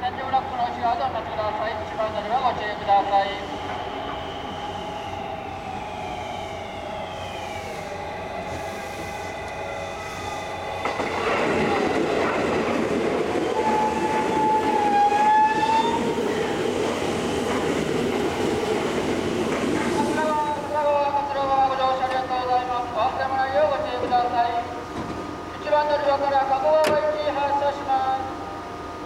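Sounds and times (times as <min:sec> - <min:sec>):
train wheels rumbling: 0:01.4 - 0:22.2
electric train motor whine: 0:01.8 - 0:19.4.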